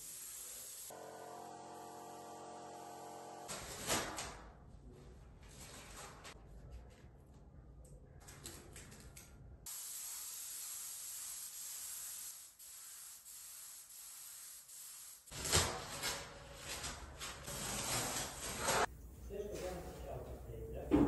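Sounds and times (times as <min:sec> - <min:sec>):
spray paint hissing: 0:00.0 - 0:01.0, 0:09.7 - 0:15.3.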